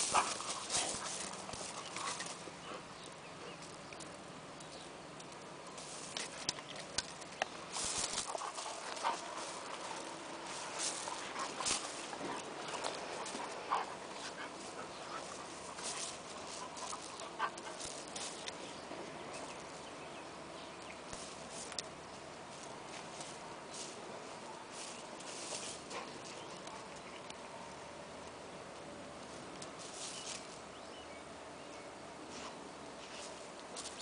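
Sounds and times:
dogs scuffling on gravel: 0.0s - 2.8s, 5.7s - 20.2s, 21.0s - 27.3s, 29.2s - 30.8s, 32.2s - 34.0s.

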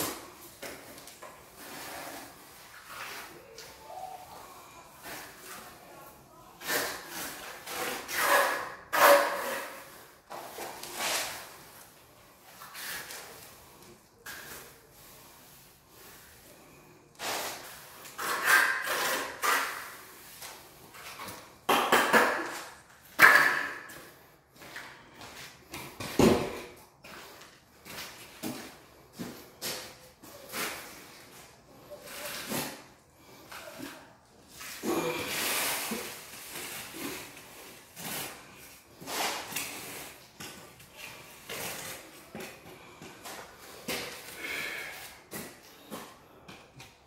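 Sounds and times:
trowel scraping wet cement: 6.6s - 10.1s, 17.2s - 20.2s.

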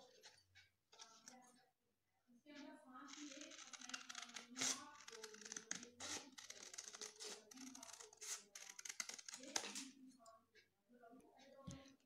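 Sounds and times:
scissors snipping paper: 3.1s - 10.0s.

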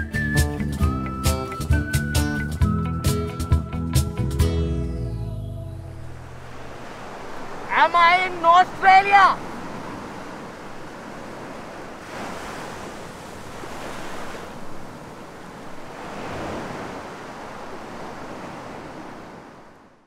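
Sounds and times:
surf washing onto beach: 6.0s - 20.0s.

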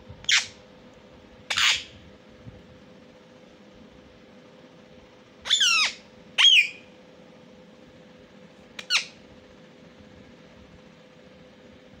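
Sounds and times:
parakeet shrill calls: 0.2s - 0.6s, 1.5s - 2.0s, 5.4s - 6.9s, 8.8s - 9.2s.

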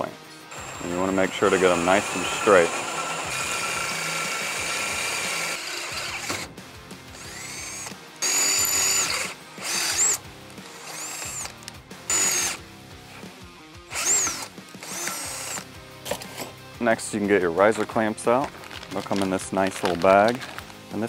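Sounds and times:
cordless drill drilling metal: 0.5s - 6.5s, 7.2s - 12.6s, 13.9s - 15.7s.

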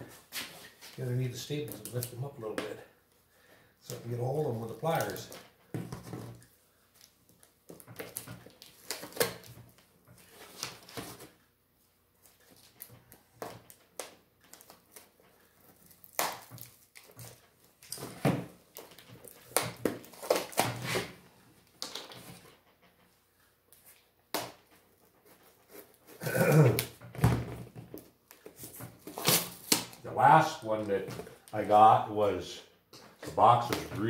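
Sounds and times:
short pitched vocal sound: 26.2s - 26.8s.

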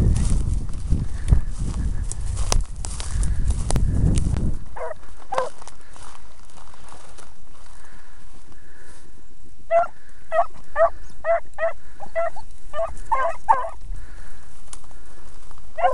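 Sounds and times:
dogs baying: 4.8s - 5.6s, 9.7s - 13.8s.

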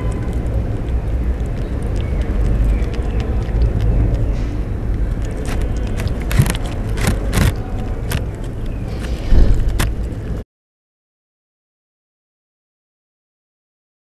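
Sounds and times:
kittens chewing and crunching: 0.0s - 10.4s
steady low rumble: 0.0s - 10.4s
dull low thump: 9.1s - 10.0s.

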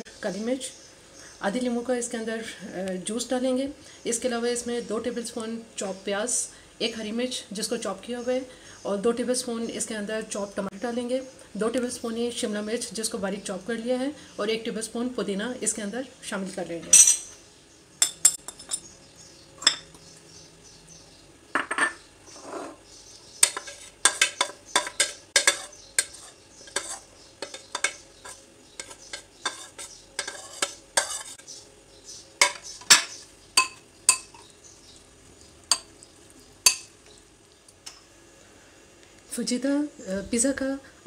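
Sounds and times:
metal spoon scraping glass bowl: 23.4s - 31.4s.

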